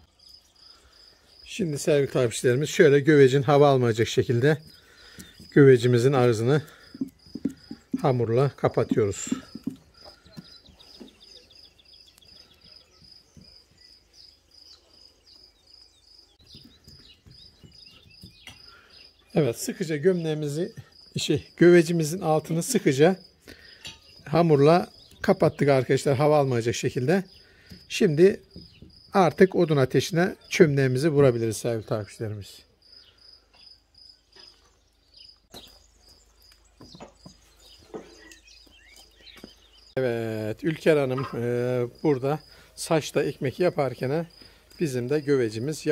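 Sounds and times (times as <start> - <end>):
insect chirping: 0.0 - 45.9
soft knocks on clay pot: 6.9 - 10.8.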